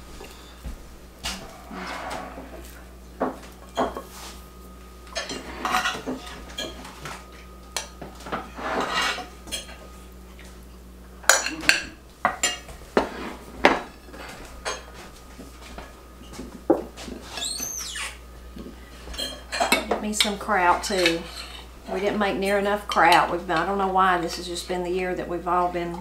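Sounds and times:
cutlery clinking on ceramic plates: 0:11.3 - 0:14.9, 0:19.1 - 0:20.3.

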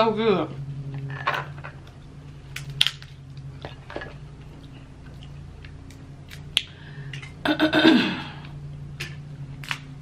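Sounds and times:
chewing: 0:03.3 - 0:07.4.

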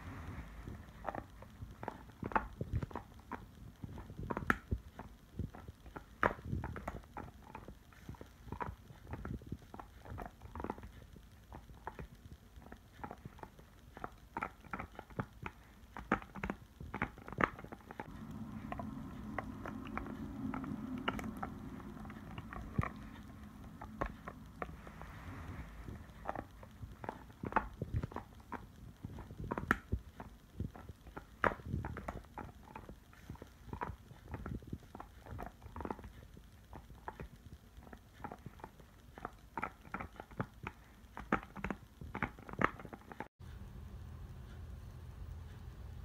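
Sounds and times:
dog chewing a rubber bone: 0:00.0 - 0:43.3
low steady hum: 0:00.0 - 0:46.0.

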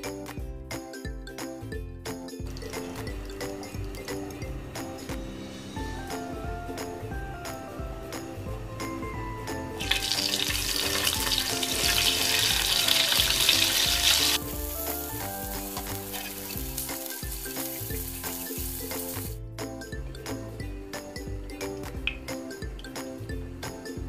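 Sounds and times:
eggs sizzling in hot oil: 0:09.8 - 0:19.4.

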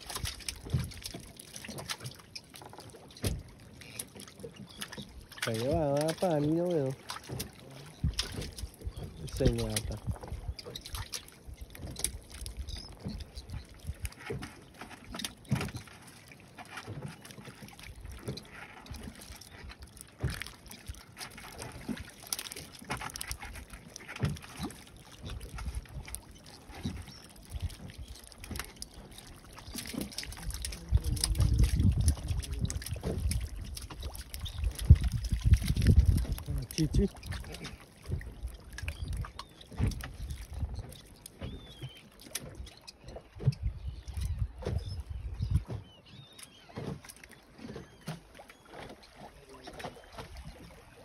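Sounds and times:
fishing gear knocks and clicks: 0:00.0 - 0:16.0
water lapping at hull: 0:00.0 - 0:51.0
wind rumble on microphone: 0:08.0 - 0:14.4, 0:30.3 - 0:41.8, 0:43.3 - 0:45.9.

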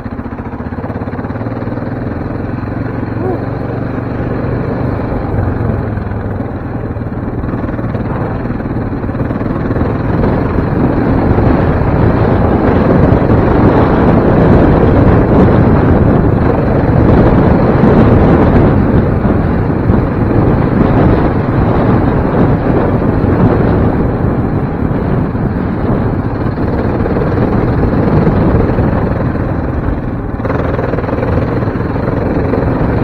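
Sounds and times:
quad bike engine: 0:00.0 - 0:33.0
wind buffeting microphone: 0:00.0 - 0:33.0.

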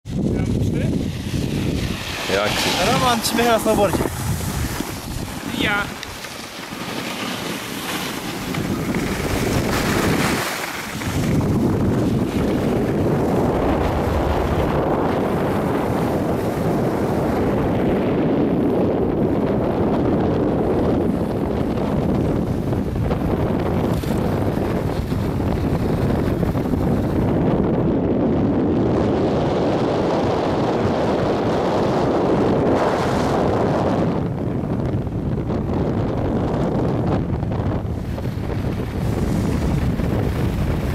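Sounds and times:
wind buffeting microphone: 0:00.0 - 0:40.9
skis sliding on packed snow: 0:00.8 - 0:17.8, 0:20.8 - 0:27.0, 0:38.0 - 0:40.9.

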